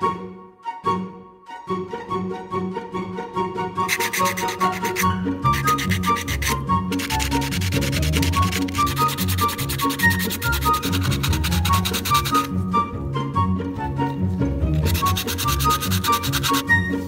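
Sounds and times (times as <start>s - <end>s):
background music: 0.0s - 17.0s
sandpaper rubbing plastic: 3.9s - 12.5s, 14.7s - 16.8s.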